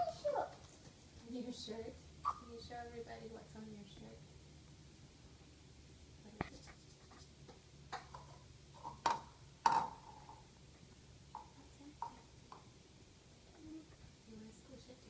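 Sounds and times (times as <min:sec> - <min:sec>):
plastic pots and tools tapping: 0:07.4 - 0:10.5, 0:11.3 - 0:12.7.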